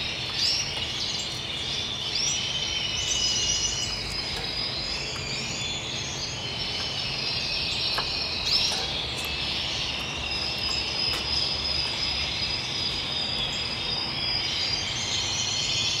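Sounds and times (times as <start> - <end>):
canaries singing: 0.0 - 16.0.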